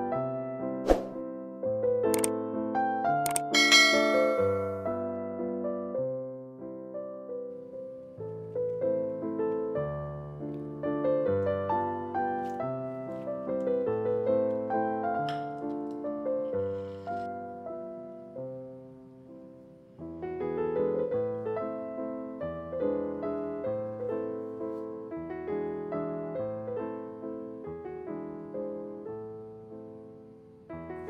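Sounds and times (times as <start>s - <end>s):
piano music: 0.0s - 31.0s.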